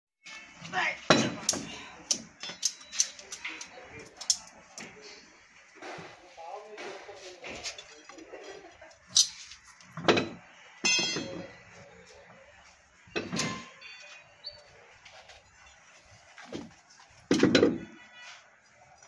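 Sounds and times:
knocks and clunks: 0:01.0 - 0:02.9, 0:09.8 - 0:11.6, 0:13.1 - 0:14.1, 0:16.4 - 0:18.0.

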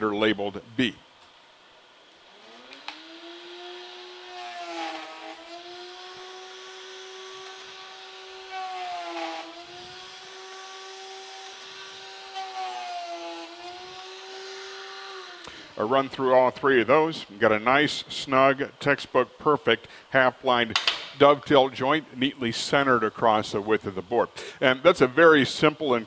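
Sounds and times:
router bit cutting wood: 0:02.2 - 0:15.8
router whining: 0:02.2 - 0:15.8.

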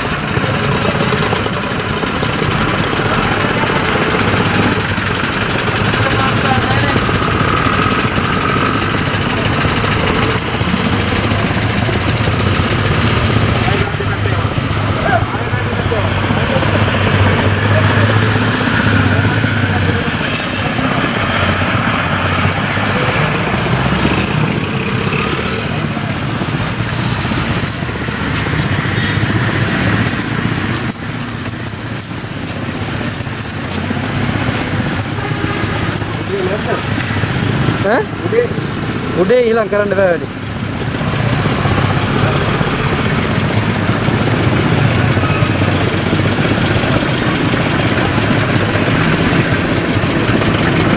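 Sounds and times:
people talking: 0:00.0 - 0:40.4
traffic on wet road: 0:00.0 - 0:50.9
vehicle engines droning: 0:00.0 - 0:50.9.

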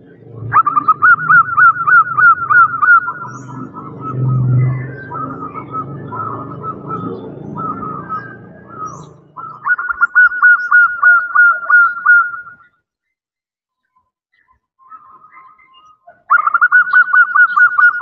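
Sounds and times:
low hum: 0:00.0 - 0:09.6
dove cooing: 0:00.0 - 0:12.6, 0:16.1 - 0:18.0.

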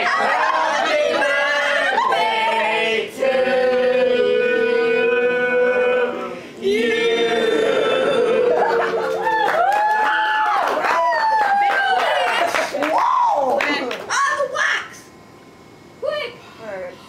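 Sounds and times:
voices singing held notes: 0:00.0 - 0:09.1.

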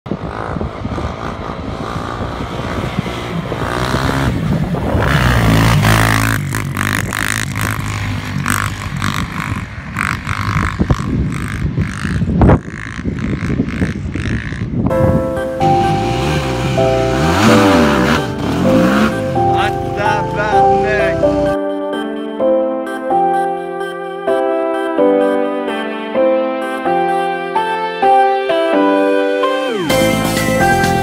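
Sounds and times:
off-road engine revving: 0:00.1 - 0:14.9, 0:15.6 - 0:21.6
wind on microphone: 0:00.1 - 0:19.4.

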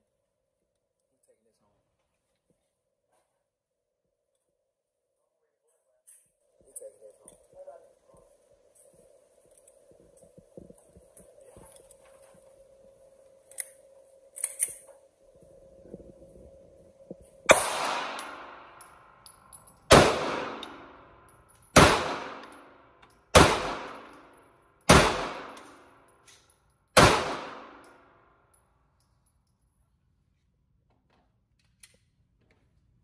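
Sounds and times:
pistol shots echoing indoors: 0:17.5 - 0:26.2, 0:27.0 - 0:28.4.

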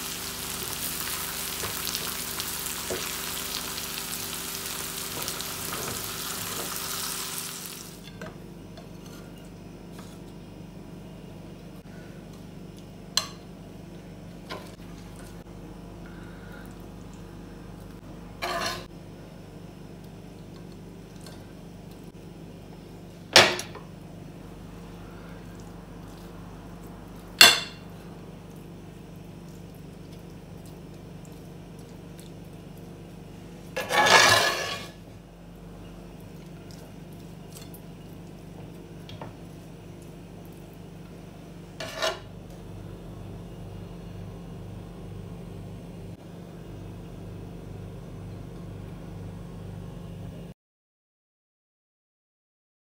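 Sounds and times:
steady low hum: 0:07.4 - 0:50.5
kitchenware clattering: 0:27.4 - 0:27.8, 0:33.8 - 0:35.0.

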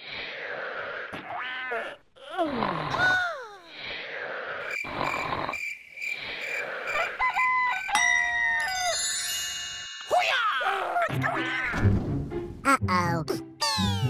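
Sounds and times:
rooster crowing: 0:07.0 - 0:09.0
sparkly twinkle: 0:07.9 - 0:10.3.

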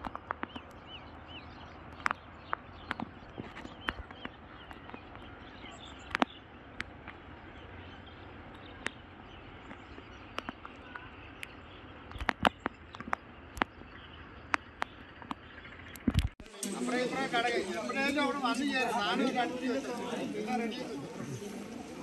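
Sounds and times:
sharp taps: 0:06.0 - 0:07.2, 0:09.6 - 0:13.8
rain hissing: 0:16.5 - 0:22.0.

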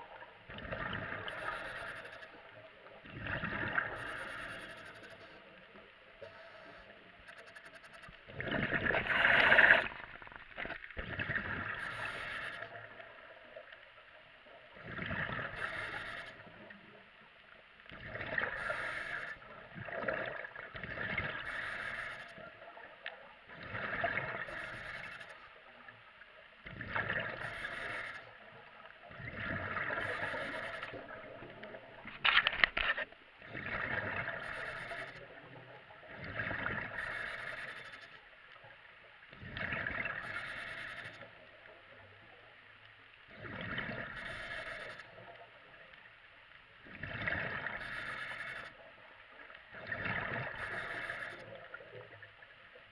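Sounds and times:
diver exhaling bubbles underwater: 0:00.5 - 0:01.6, 0:03.0 - 0:04.2, 0:08.3 - 0:12.8, 0:29.1 - 0:32.1, 0:33.4 - 0:34.5.

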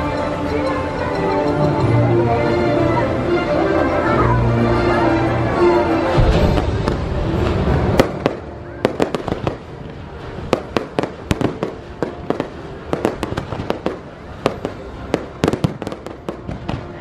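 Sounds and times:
fireworks bangs and pops: 0:06.2 - 0:17.0.

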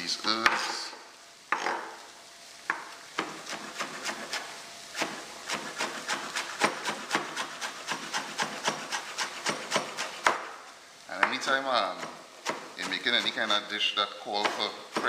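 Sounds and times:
knife chopping on wooden board: 0:02.7 - 0:04.4, 0:05.0 - 0:10.5, 0:11.2 - 0:13.5, 0:14.4 - 0:15.0.

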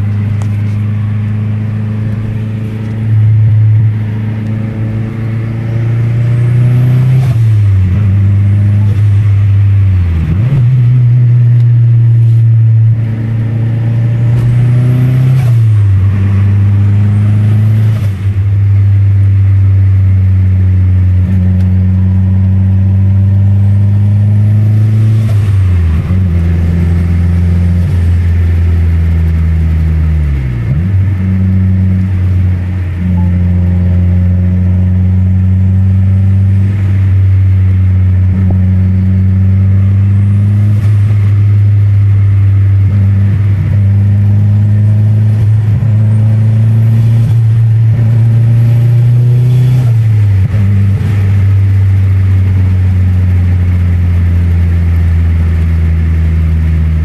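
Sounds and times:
car engine accelerating through gears: 0:00.0 - 0:57.0.

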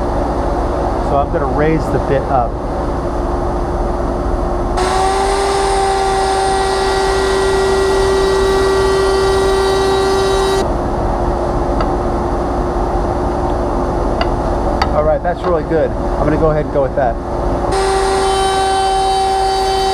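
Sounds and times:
router bit cutting wood: 0:04.8 - 0:10.6, 0:17.7 - 0:19.9
router whining: 0:04.8 - 0:10.6, 0:17.7 - 0:19.9.

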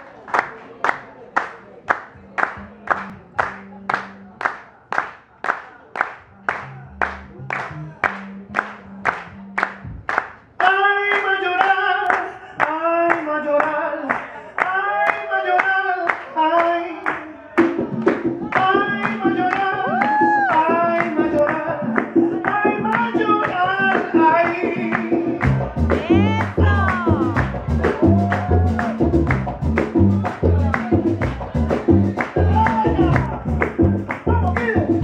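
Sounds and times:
hand claps: 0:00.3 - 0:35.0
double bass: 0:02.2 - 0:04.4, 0:06.2 - 0:10.3, 0:25.1 - 0:35.0
man singing: 0:10.6 - 0:35.0.

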